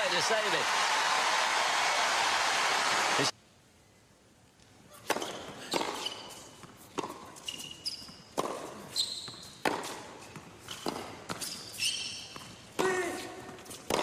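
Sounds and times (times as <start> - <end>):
racket striking tennis ball: 5.0 - 7.4, 8.3 - 8.9, 9.5 - 11.6, 12.3 - 14.0
shoes squeaking on court: 5.0 - 14.0
ball bouncing on court: 8.0 - 11.6, 13.8 - 14.0.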